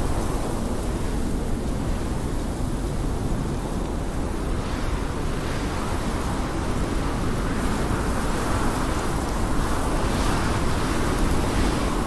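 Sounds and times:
blizzard wind blowing: 0.0s - 12.0s
rush of wind-driven snow: 0.0s - 12.0s.

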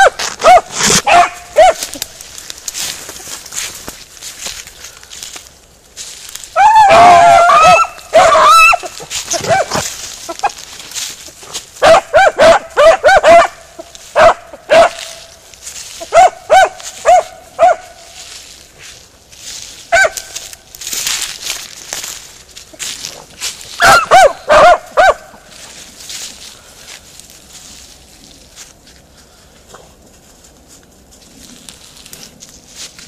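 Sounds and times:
hounds barking and yelping: 0.0s - 2.1s, 6.5s - 10.8s, 11.8s - 15.3s, 15.9s - 18.2s, 19.9s - 20.4s, 22.8s - 25.7s.

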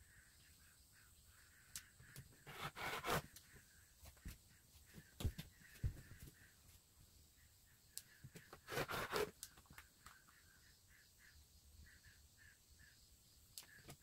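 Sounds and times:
rotary cutter swishing through fabric: 2.4s - 3.3s.

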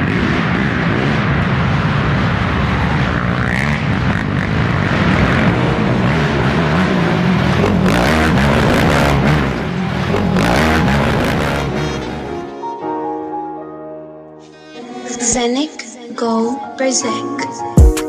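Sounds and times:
racing quad engines revving: 0.0s - 12.4s.

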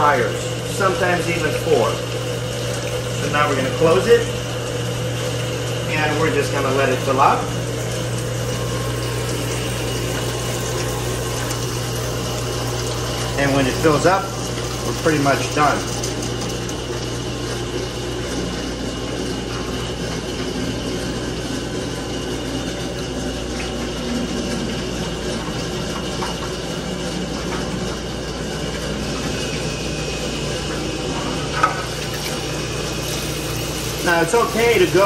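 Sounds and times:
oil flowing: 0.0s - 35.0s
pump motor humming: 0.0s - 35.0s.

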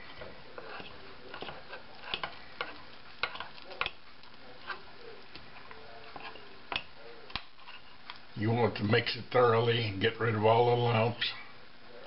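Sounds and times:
spoon stirring in ceramic mug: 0.6s - 4.0s, 4.6s - 6.9s.

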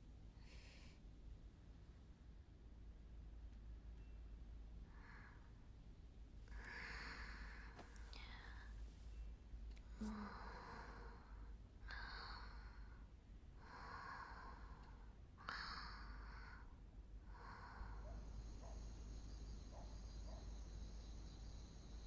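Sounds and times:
woman breathing slowly: 0.3s - 1.1s, 4.8s - 5.9s, 6.5s - 22.0s
faint high whine: 3.7s - 13.1s, 17.3s - 22.0s.

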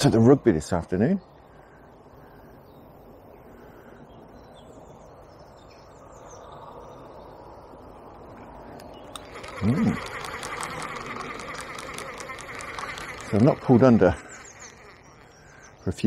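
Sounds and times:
birds chirping: 0.0s - 16.0s
buzzing with fast ticks: 8.8s - 16.0s.

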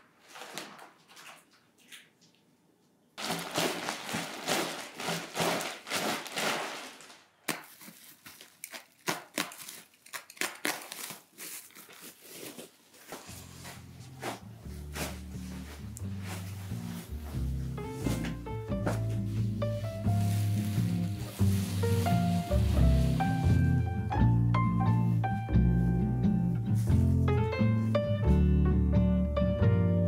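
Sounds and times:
plastic packaging crinkling: 0.1s - 1.6s, 3.2s - 15.6s, 20.0s - 23.7s
music: 13.3s - 30.0s.

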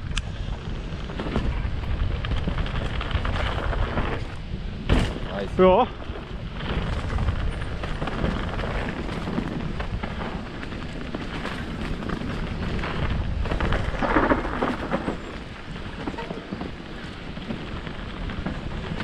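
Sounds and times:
bike tyres rumbling over dirt: 0.0s - 19.0s
bike knocks and rattles: 0.2s - 19.0s.

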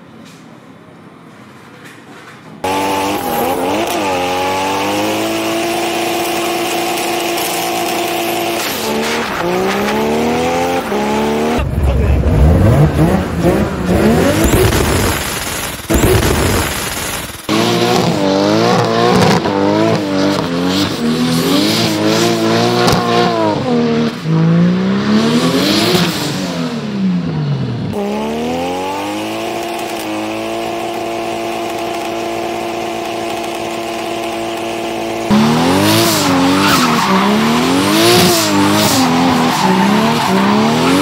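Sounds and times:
car engine revving hard: 2.6s - 41.0s
tyres squealing: 36.0s - 41.0s.

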